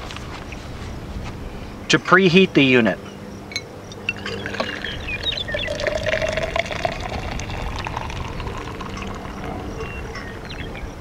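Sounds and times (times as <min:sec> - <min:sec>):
water pouring into glass: 0:04.0 - 0:10.7.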